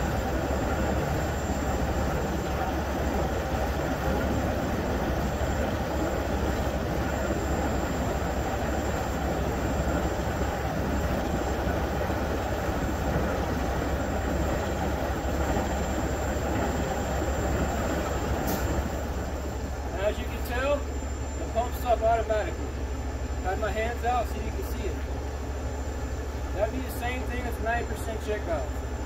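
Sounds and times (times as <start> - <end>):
pump droning: 0.0 - 29.0.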